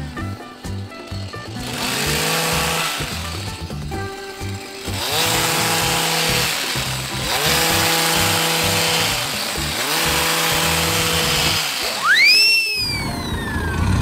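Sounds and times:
hedge trimmer revving: 0.0 - 14.0
swooping whistle sound effect: 11.9 - 14.0.

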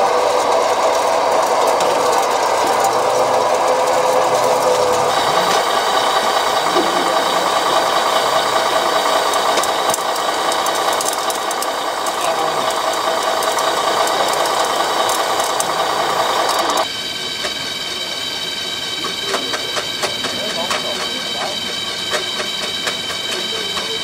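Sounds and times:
scattered clicks: 0.0 - 17.6
model vehicles whirring and rattling: 0.0 - 24.0.

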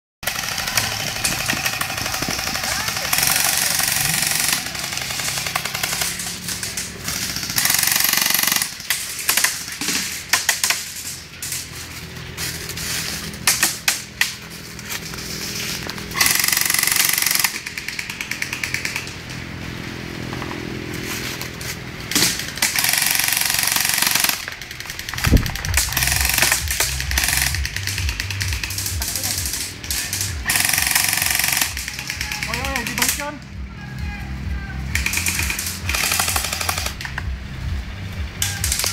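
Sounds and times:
airsoft rifles firing bursts: 0.2 - 11.6, 16.1 - 19.4, 22.1 - 33.4, 34.9 - 37.2, 38.4 - 38.9.

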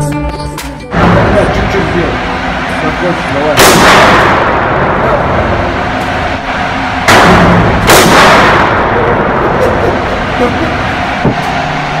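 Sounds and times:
pistol shots echoing: 3.6 - 4.9, 7.1 - 9.2.

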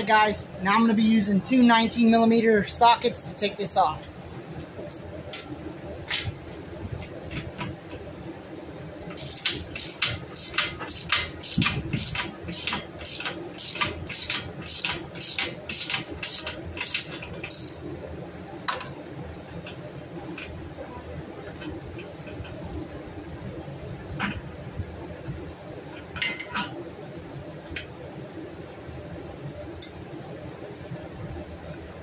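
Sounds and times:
socket ratchet clicking: 9.2 - 17.8.

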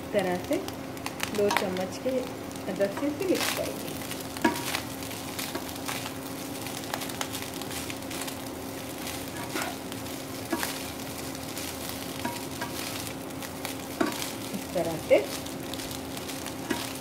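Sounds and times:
rice sizzling in a wok: 0.0 - 17.0
utensils scraping and knocking pan: 4.4 - 6.1, 9.0 - 9.8, 10.5 - 10.9, 12.2 - 13.1, 14.0 - 14.4, 16.6 - 17.0.

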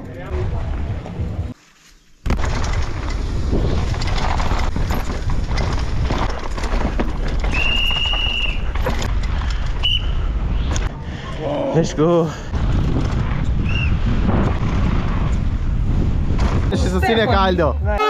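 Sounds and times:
mountain bike clattering over trail: 2.3 - 10.1
wind rumble on microphone: 2.3 - 17.6.

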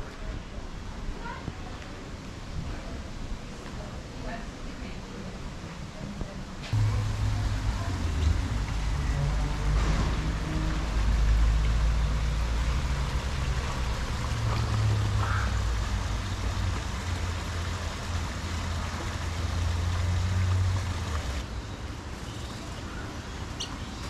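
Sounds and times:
waterfall splashing into pond: 6.7 - 21.5.

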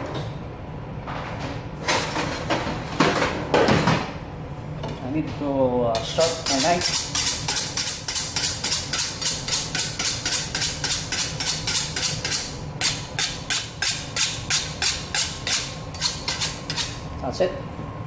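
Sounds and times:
knife scraping sharpening steel: 6.2 - 17.0.

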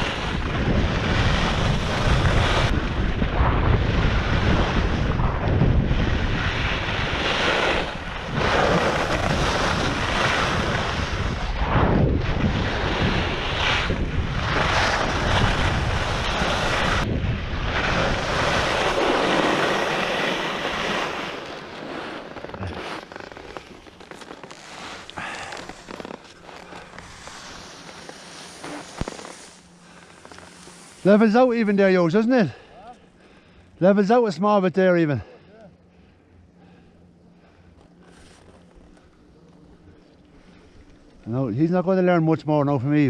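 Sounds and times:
ski swish on turns: 0.0 - 2.8, 3.9 - 17.1, 17.7 - 31.4
wind buffeting microphone: 0.0 - 19.4
skis scraping on hard snow: 0.0 - 31.8.

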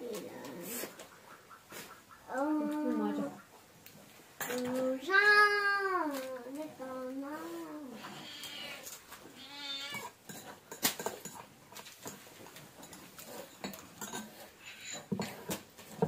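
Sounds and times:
metal spoons clinking on bowls: 9.8 - 15.4.

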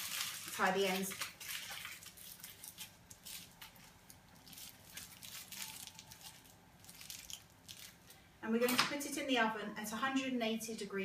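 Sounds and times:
aluminium foil crinkling: 0.0 - 8.2.

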